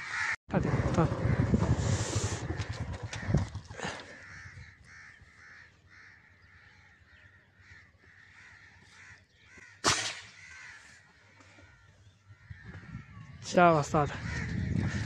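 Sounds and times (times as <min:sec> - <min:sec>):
crows cawing: 0:00.0 - 0:00.4, 0:02.4 - 0:13.4, 0:14.1 - 0:15.0
air rifle shot: 0:09.8 - 0:10.4.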